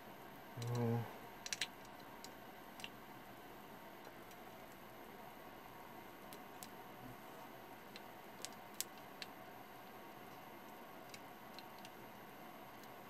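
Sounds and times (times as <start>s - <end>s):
sharp clicks: 1.4s - 3.0s.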